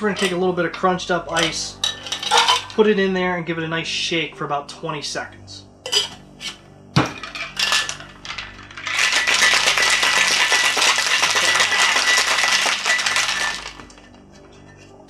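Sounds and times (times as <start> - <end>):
metal tins clicking and knocking: 1.3 - 2.8, 5.9 - 15.0
ice rattling in metal shaker: 7.2 - 14.8.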